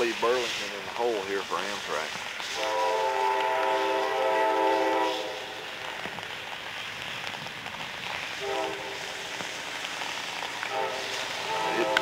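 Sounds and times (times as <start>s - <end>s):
steady train noise: 0.0s - 12.0s
locomotive air horn: 2.5s - 5.6s, 8.4s - 9.0s, 10.7s - 12.0s.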